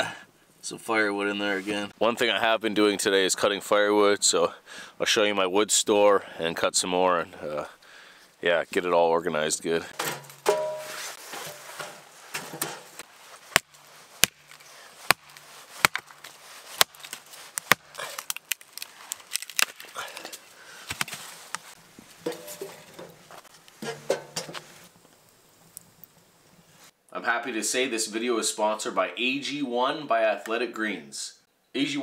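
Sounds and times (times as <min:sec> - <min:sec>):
firewood knocks and clacks: 0:11.8 - 0:19.8.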